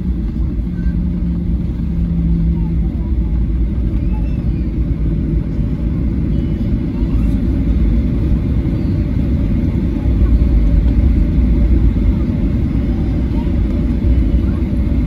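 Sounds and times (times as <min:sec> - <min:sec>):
aircraft cabin rumble on runway: 0:00.0 - 0:15.0.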